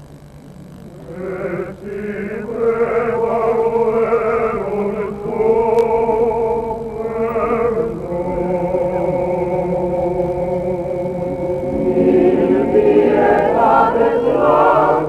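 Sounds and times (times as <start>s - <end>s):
choir chanting: 1.1s - 5.6s, 11.3s - 15.0s.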